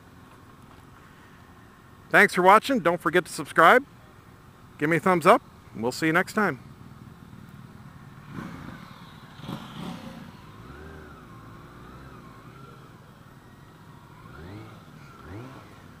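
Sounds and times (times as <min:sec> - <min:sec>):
road and wind noise: 0:00.0 - 0:16.0
motorcycle engine running: 0:06.6 - 0:16.0.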